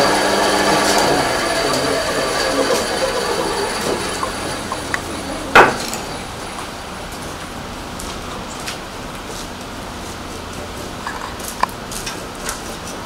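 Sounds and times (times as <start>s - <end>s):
power tool whining: 0.0s - 6.6s
loud sharp knock: 5.6s - 5.9s.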